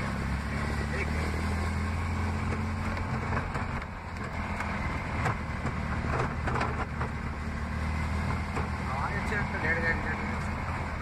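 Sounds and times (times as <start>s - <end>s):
vehicle engine humming: 0.0s - 11.0s
knocks and rattles: 5.2s - 7.2s.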